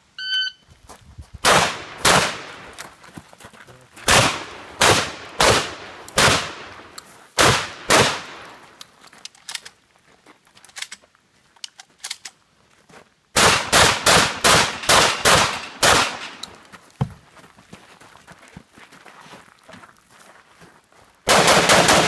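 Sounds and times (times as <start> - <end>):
rapid shotgun shots: 1.4 - 2.6, 4.1 - 6.7, 7.4 - 8.4, 13.4 - 16.4, 21.3 - 22.0
handgun shots: 13.4 - 16.6.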